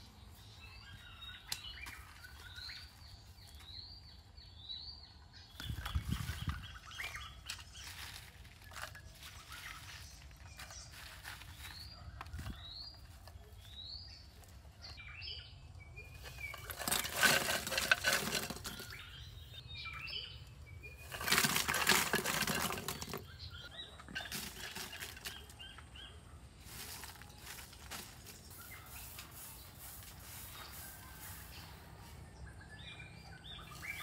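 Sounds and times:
birds chirping: 0:00.0 - 0:34.0
rustling scraping noise: 0:05.6 - 0:15.0, 0:16.1 - 0:19.4, 0:20.9 - 0:25.9, 0:26.6 - 0:32.4.

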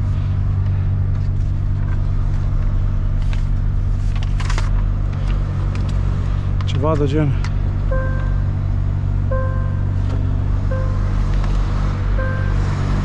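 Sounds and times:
truck diesel engine idling: 0:07.3 - 0:13.0.

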